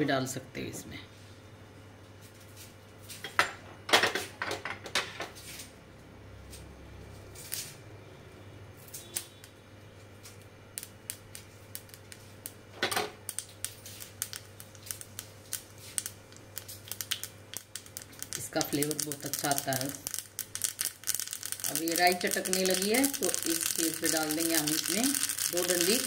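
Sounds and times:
seeds popping in hot oil: 8.8s - 26.0s.

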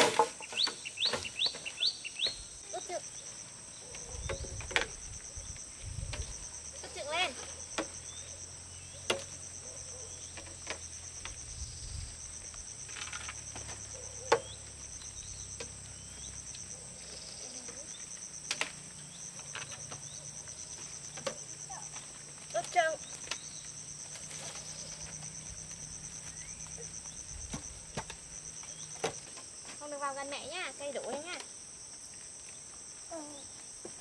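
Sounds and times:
insects trilling: 0.0s - 34.0s.

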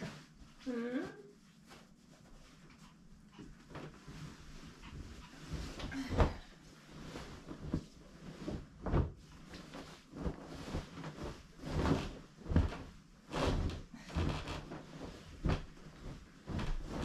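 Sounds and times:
comforter fabric rustling and whooshing: 3.5s - 17.0s
soft thumps of comforter landing: 5.5s - 17.0s.

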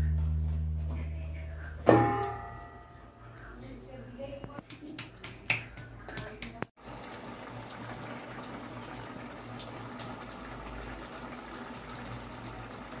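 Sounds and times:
curry bubbling in a pot: 6.8s - 13.0s.

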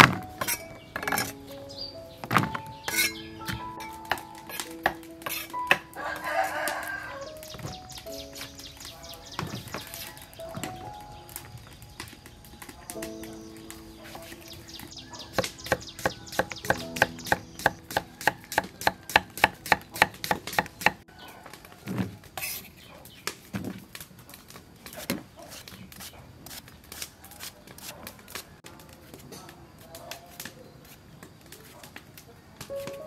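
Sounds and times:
cleaver chopping on wooden block: 15.3s - 21.0s.

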